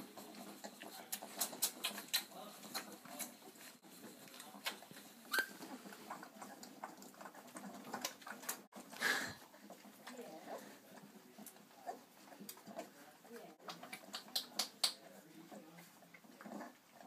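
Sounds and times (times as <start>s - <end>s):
puppies suckling wet smacking: 0.0s - 17.0s
puppy high squeak: 5.3s - 5.6s.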